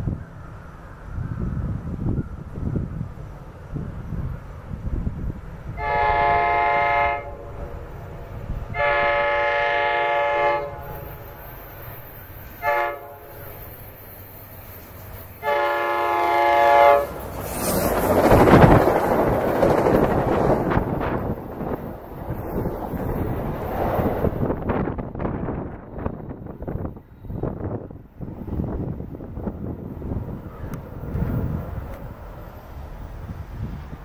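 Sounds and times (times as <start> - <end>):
train passing with rushing roar: 0.0 - 34.0
train horn blasts: 5.7 - 7.6, 8.7 - 11.2, 12.6 - 13.7, 15.4 - 17.2.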